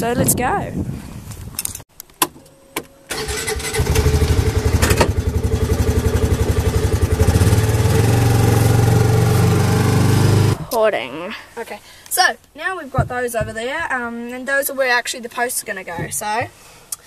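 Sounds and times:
utility vehicle engine running: 3.1s - 10.7s.

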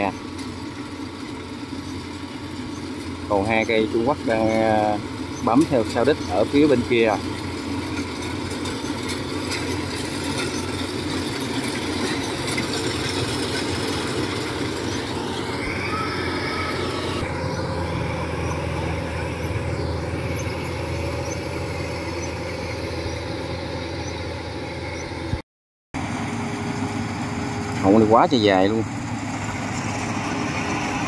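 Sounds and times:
harvester diesel engine running: 0.0s - 25.4s, 26.0s - 31.0s
brief squeal: 15.6s - 17.2s.

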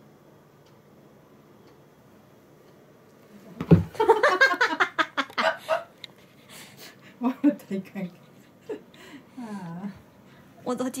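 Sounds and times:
faint regular ticking: 0.4s - 3.2s
cat landing with a thump: 3.6s - 4.0s.

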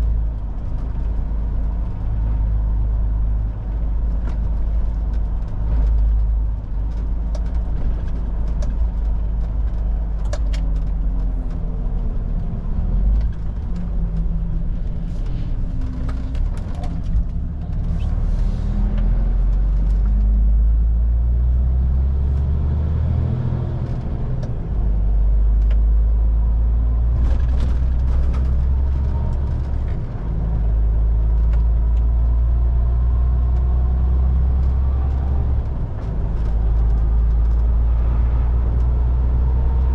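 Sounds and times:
road noise: 0.0s - 39.9s.

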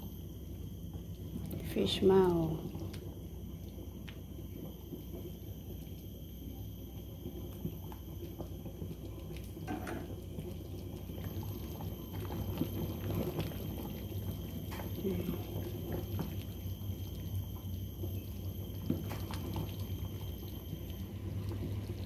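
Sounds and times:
soup bubbling: 6.9s - 22.0s.

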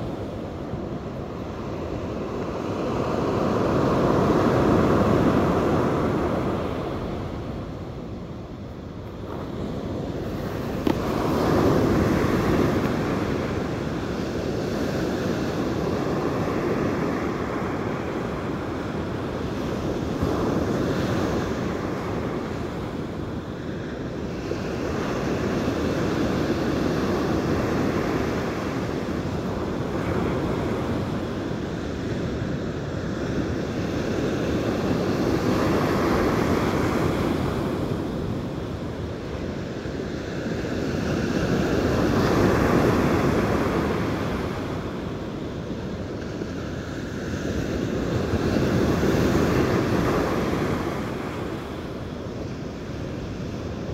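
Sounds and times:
surf breaking on beach: 9.2s - 23.0s.

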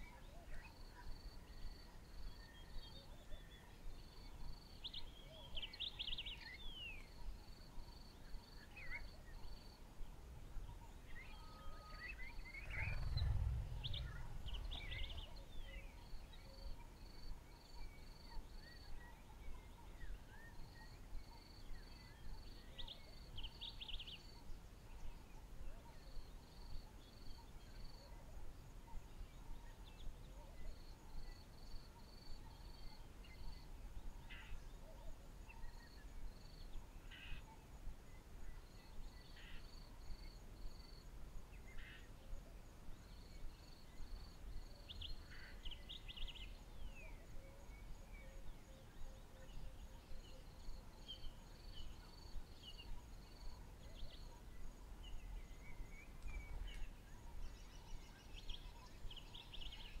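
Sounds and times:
faint high hum: 11.4s - 16.2s
low rumble: 12.1s - 16.4s.

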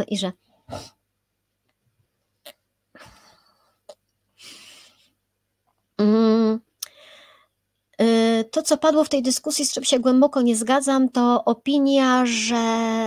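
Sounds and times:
woman humming: 6.0s - 6.7s
woman breathing and sighing: 6.9s - 7.6s.

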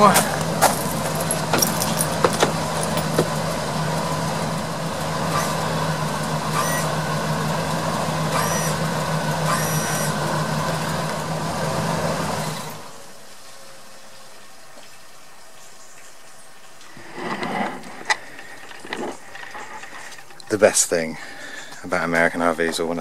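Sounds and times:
motor humming: 0.0s - 13.0s.

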